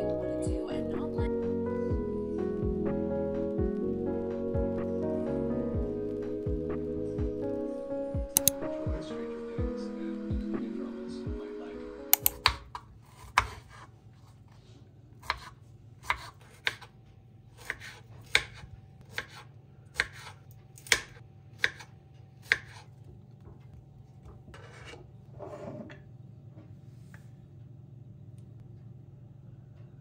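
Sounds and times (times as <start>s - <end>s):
knife chopping on cutting board: 12.2s - 13.9s, 15.2s - 16.9s, 17.6s - 22.9s
soft scraping: 24.5s - 27.3s.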